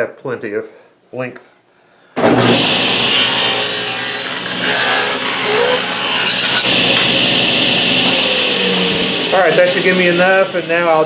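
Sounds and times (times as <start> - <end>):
table saw cutting wood: 2.4 - 11.0.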